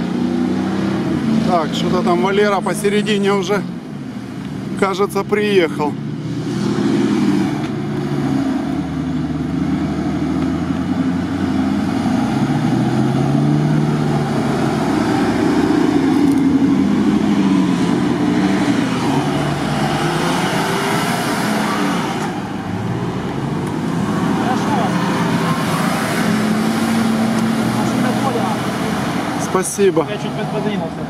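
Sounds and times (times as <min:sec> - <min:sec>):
car engine revving: 0:00.0 - 0:31.0
tyres churning through mud: 0:09.4 - 0:31.0.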